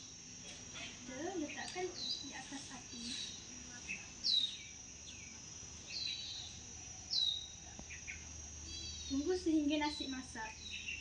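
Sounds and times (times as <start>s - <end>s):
high-pitched insect drone: 0.0s - 11.0s.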